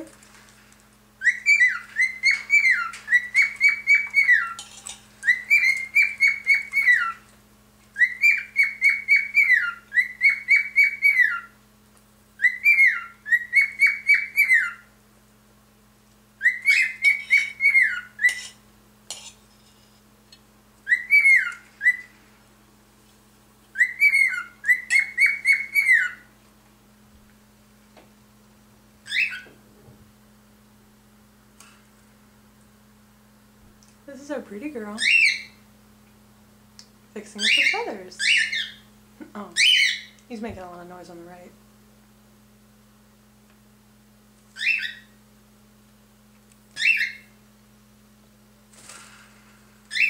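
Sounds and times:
cockatiel whistling: 0:01.2 - 0:04.6, 0:05.2 - 0:07.2, 0:08.0 - 0:11.6, 0:12.4 - 0:14.9, 0:16.4 - 0:18.5, 0:20.8 - 0:22.2, 0:23.7 - 0:26.3, 0:29.1 - 0:29.5, 0:44.6 - 0:45.2, 0:46.8 - 0:47.3.

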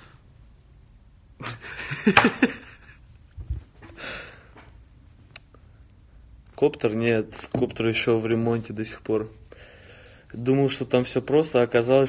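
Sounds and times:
man's breathy laugh: 0:01.4 - 0:03.0
soft breath out: 0:03.8 - 0:04.7, 0:09.5 - 0:10.3.

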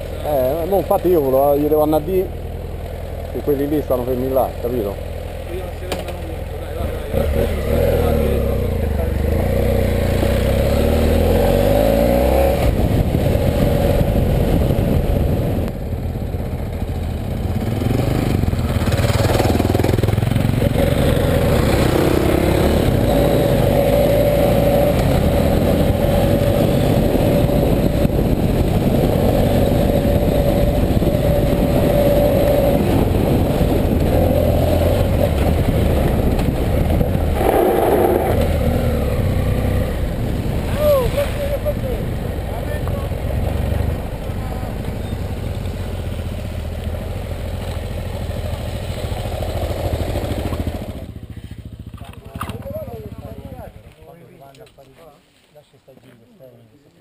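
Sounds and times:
motorcycle engine running: 0:00.0 - 0:54.2
road noise: 0:00.0 - 0:57.0
wind noise: 0:11.1 - 0:16.0, 0:17.5 - 0:44.2.

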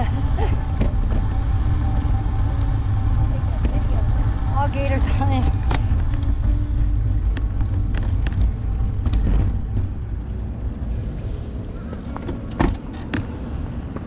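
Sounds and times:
bicycle road noise: 0:00.0 - 0:14.0
bicycle clicks and knocks: 0:07.2 - 0:11.0, 0:11.9 - 0:14.0.

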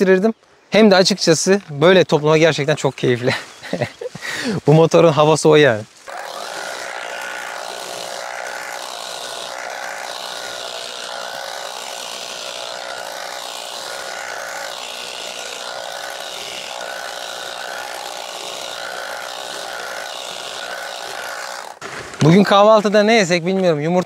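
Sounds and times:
tea harvesting machine running: 0:06.1 - 0:21.7.

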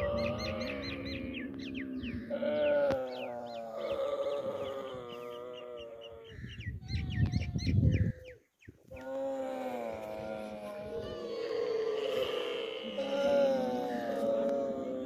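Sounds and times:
camel grunting rumble: 0:00.0 - 0:06.4, 0:09.4 - 0:15.0
camels bleating: 0:00.0 - 0:06.6, 0:09.0 - 0:15.0
small birds chirping: 0:00.0 - 0:09.4.

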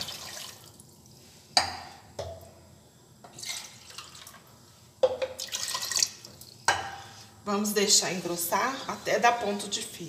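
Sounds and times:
water pouring and splashing: 0:00.0 - 0:01.0, 0:05.4 - 0:06.6.

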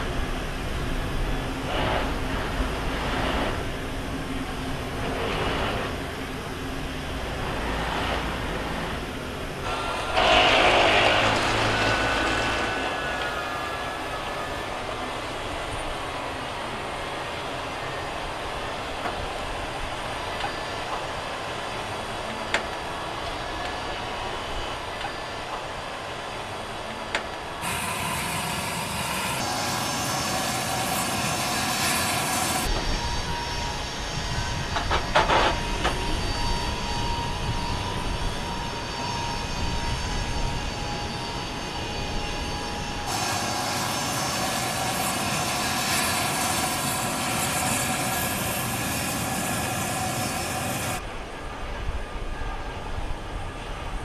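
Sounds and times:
turbine engine whine: 0:00.0 - 0:54.0
tank tracks clanking and squealing: 0:34.7 - 0:36.6.

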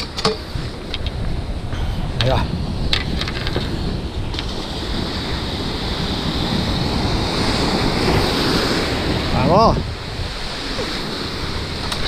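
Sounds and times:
surf washing over concrete: 0:00.0 - 0:12.0
wind buffeting microphone: 0:00.0 - 0:12.0.

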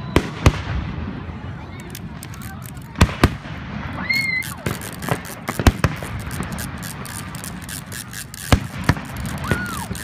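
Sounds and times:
fireworks bangs and crackles: 0:00.0 - 0:02.2, 0:02.8 - 0:07.0, 0:08.5 - 0:10.0.

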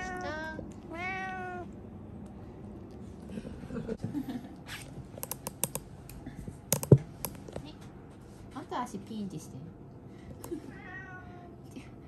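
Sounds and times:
cat meowing: 0:00.0 - 0:01.7, 0:10.7 - 0:11.5.

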